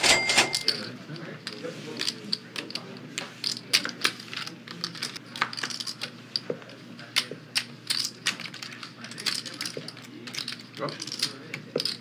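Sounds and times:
poker chips clicking: 0:07.2 - 0:12.0.

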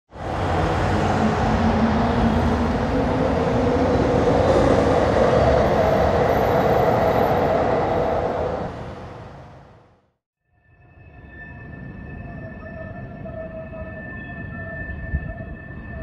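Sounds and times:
eerie rumbling drone: 0:00.1 - 0:09.9
deep noisy roar: 0:00.1 - 0:10.0.

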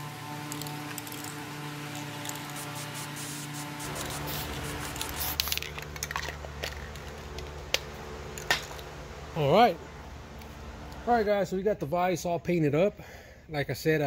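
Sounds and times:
aerosol spray can hissing: 0:01.9 - 0:05.8
spray can clicks: 0:03.9 - 0:06.3.

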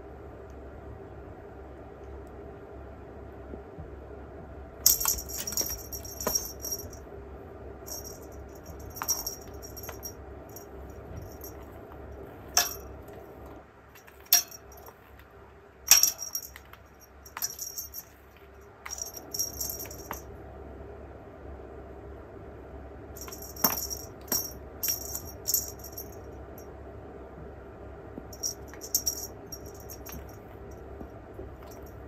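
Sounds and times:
small bell jingling: 0:04.8 - 0:07.0, 0:07.9 - 0:11.7, 0:12.6 - 0:12.9, 0:14.0 - 0:15.0, 0:15.9 - 0:18.2, 0:18.9 - 0:20.3, 0:23.2 - 0:26.7, 0:28.3 - 0:30.8, 0:31.6 - 0:32.0.

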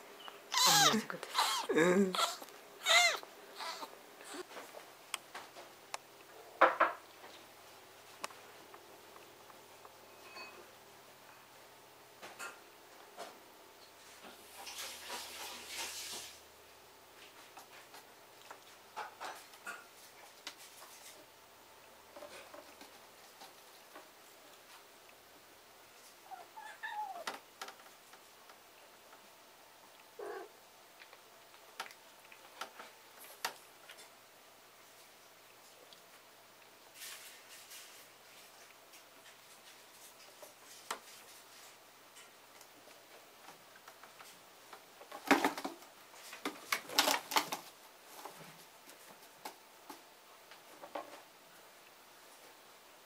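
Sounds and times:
cat meowing: 0:00.5 - 0:04.4, 0:26.2 - 0:27.3, 0:30.2 - 0:30.5.

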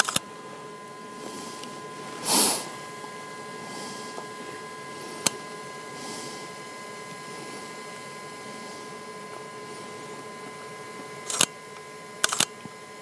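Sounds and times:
camera shutter clicking: 0:00.0 - 0:00.2, 0:11.2 - 0:11.5, 0:12.2 - 0:12.5
faint electronic whine: 0:00.0 - 0:13.0
breathy hiss: 0:01.1 - 0:10.3.

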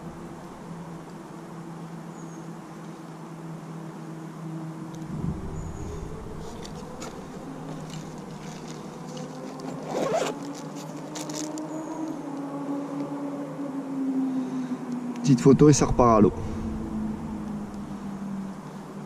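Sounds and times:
steady low hum: 0:00.0 - 0:01.8, 0:04.6 - 0:09.6, 0:15.3 - 0:19.0
zipper pulled open: 0:07.8 - 0:11.6.

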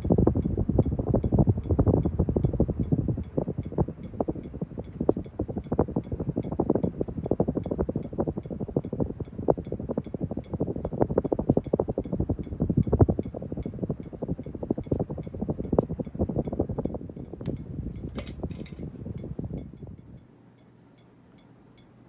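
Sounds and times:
ceiling fan running: 0:00.0 - 0:22.0
clinking rattle: 0:18.1 - 0:18.9.

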